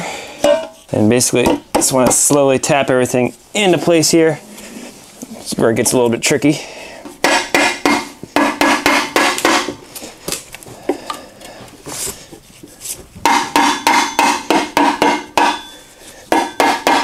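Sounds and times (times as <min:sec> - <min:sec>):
hammer tapping metal cover: 0:13.2 - 0:17.0.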